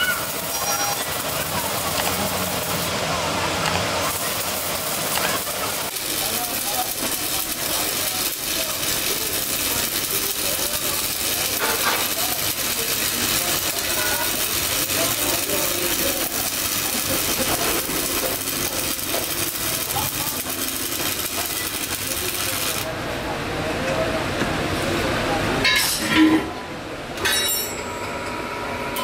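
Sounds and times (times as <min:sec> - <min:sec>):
welding arc sizzling and crackling: 0:00.0 - 0:23.1.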